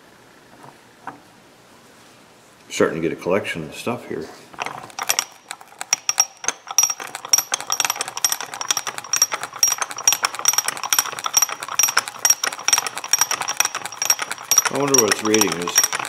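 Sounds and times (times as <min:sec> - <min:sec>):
ratchet jack clicking: 0:04.6 - 0:16.0.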